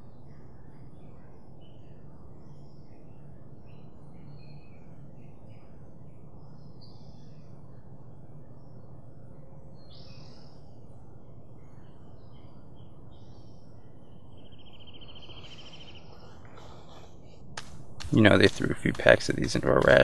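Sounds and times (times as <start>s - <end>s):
low background rumble: 0.0s - 20.0s
bird chirps and calls: 14.3s - 17.4s.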